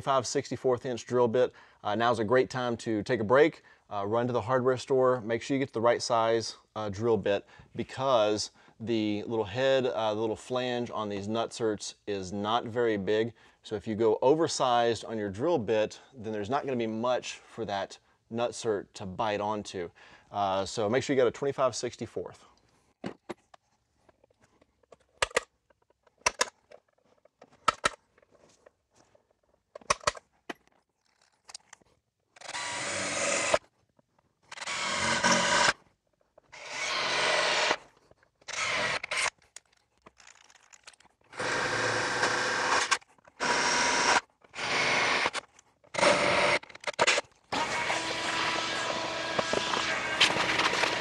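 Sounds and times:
cordless drill boring metal: 32.4 - 33.6, 34.5 - 35.8, 36.5 - 37.8, 38.5 - 39.3, 41.3 - 45.4, 46.0 - 51.0.

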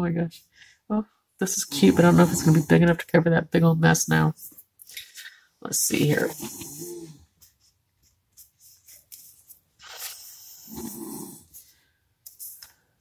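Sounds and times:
paper rustling: 7.4 - 10.6.

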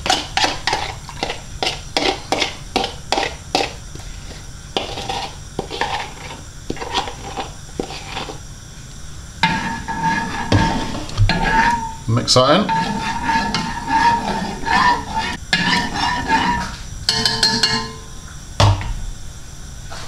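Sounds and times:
cutlery scraping a ceramic bowl: 0.0 - 3.8, 4.8 - 8.4, 9.4 - 18.1.

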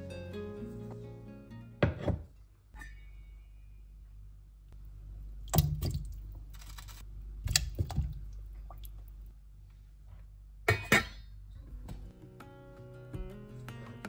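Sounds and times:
low steady hum: 0.0 - 12.1
knocks and clinks on metal pot: 10.7 - 11.2.

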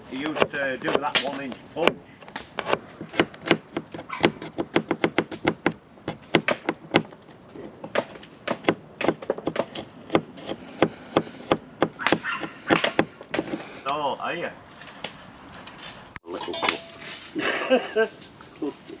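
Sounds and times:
knife chopping on cutting board: 0.2 - 2.0, 7.9 - 13.1.

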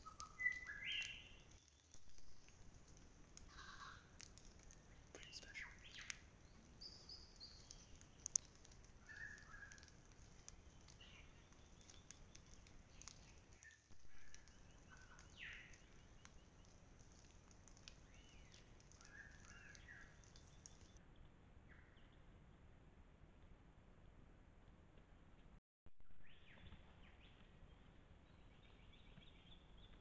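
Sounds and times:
bird chirps: 0.0 - 2.6, 5.2 - 22.2, 26.2 - 30.0
faint clicks: 0.0 - 21.0.

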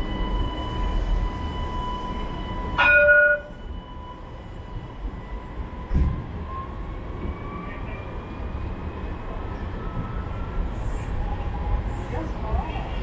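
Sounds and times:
tram electric whine: 0.0 - 13.0
tram horn blast: 2.7 - 3.6
brief thud: 5.9 - 6.2.

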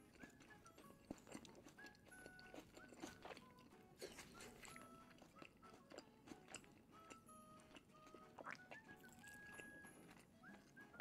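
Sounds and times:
close-up chewing: 0.0 - 11.0
faint background music: 0.0 - 11.0.

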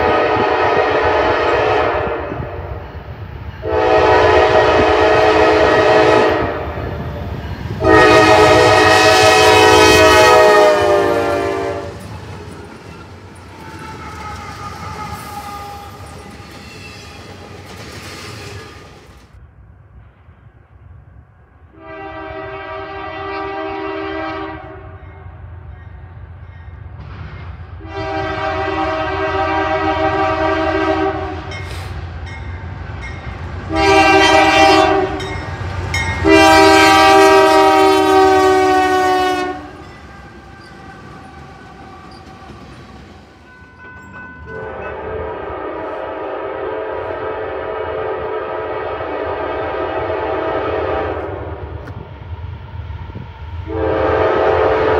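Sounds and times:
locomotive air horn blasts: 0.0 - 2.8, 3.6 - 7.1, 7.8 - 12.0, 13.9 - 16.1, 21.7 - 25.1, 27.8 - 31.9, 33.7 - 35.4, 36.2 - 39.9, 44.5 - 51.6, 53.6 - 54.9
train low rumble: 0.0 - 54.9.

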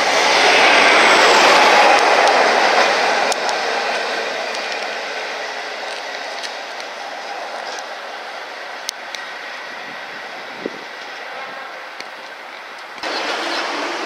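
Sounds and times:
train running rumble: 0.0 - 14.0
wheels clicking on track: 0.0 - 14.0.

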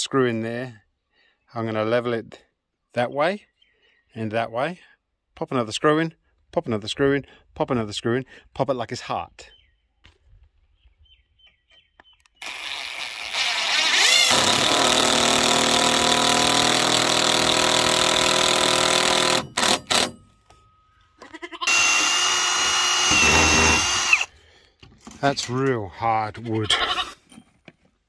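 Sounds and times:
cordless drill driving a screw: 12.4 - 20.1, 21.6 - 24.3.

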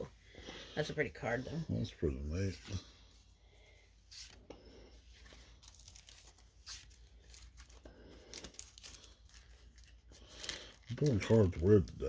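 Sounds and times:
cards and wrappers rustling: 4.0 - 12.0.

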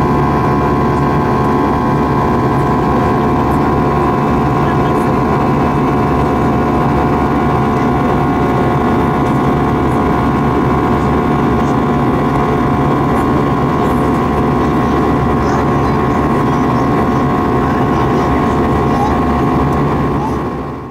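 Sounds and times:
jet engines rumbling with whine: 0.0 - 20.9.

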